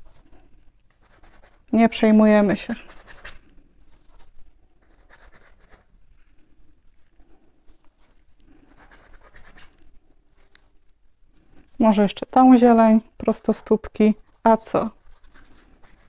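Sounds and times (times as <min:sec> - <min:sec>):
paintbrush brushing canvas: 0:00.0 - 0:06.0, 0:07.7 - 0:10.6, 0:13.6 - 0:16.0.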